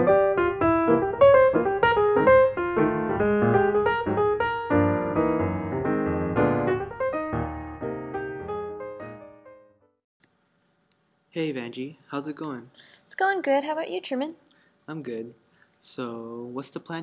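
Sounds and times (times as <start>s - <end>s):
piano music: 0.0s - 10.0s.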